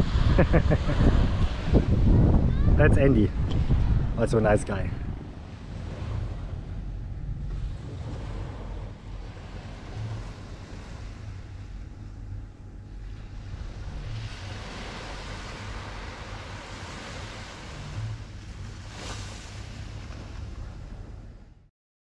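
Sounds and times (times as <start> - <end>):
wind buffeting microphone: 0.0 - 21.6
small waves washing onto sand: 7.5 - 11.9, 13.0 - 21.2.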